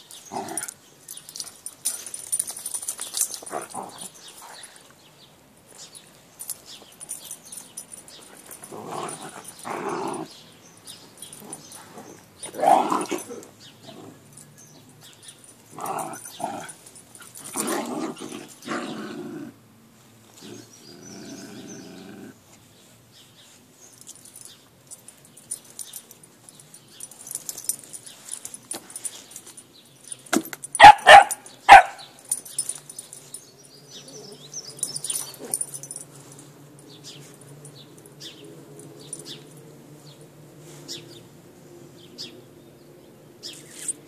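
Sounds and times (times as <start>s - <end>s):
dogs growling: 0.2s - 0.8s, 3.4s - 4.8s, 8.2s - 10.4s, 11.2s - 14.4s, 15.7s - 19.6s, 20.3s - 22.4s.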